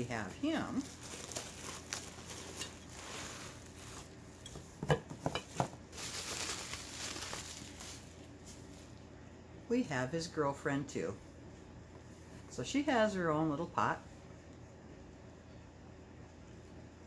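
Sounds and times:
bubble wrap rustling: 0.0s - 9.1s.

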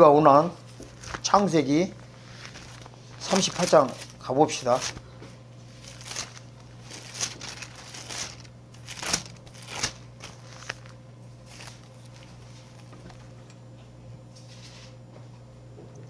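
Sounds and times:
pages flicking: 0.7s - 5.0s, 5.8s - 13.2s.

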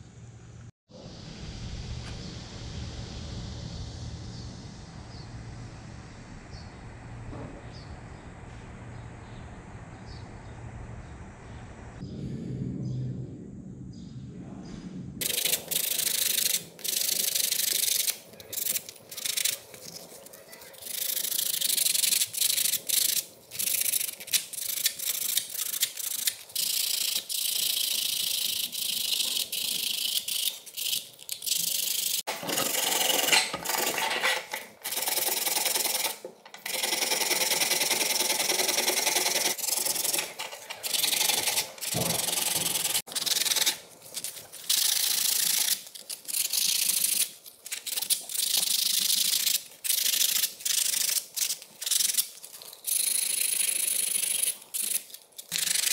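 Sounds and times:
knife blade scraping on abrasive: 15.2s - 36.3s.

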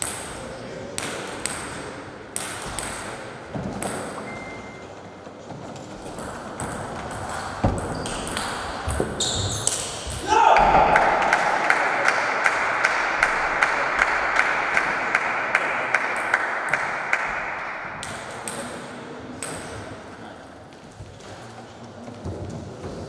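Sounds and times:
table-tennis ball bouncing: 0.0s - 0.4s, 1.0s - 4.6s, 6.0s - 11.8s, 12.4s - 19.9s.

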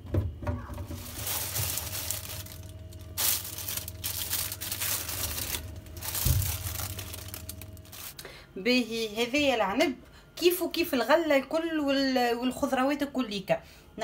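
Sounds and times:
plastic bag crinkling: 0.8s - 8.2s.

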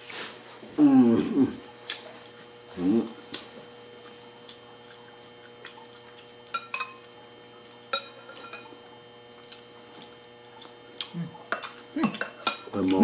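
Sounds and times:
metal spoon clinking on ceramic bowl: 6.5s - 7.0s, 7.9s - 8.7s, 11.4s - 12.8s.

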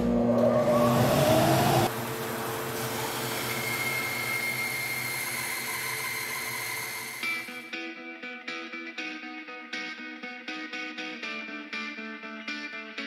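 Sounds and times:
dust collector motor spinning up: 0.0s - 7.6s.

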